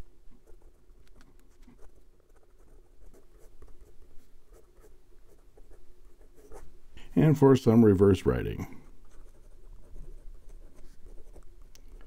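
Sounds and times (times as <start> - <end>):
faint steady hum: 0.0 - 12.0
fountain pen scratching on paper: 1.7 - 6.7, 9.0 - 11.5.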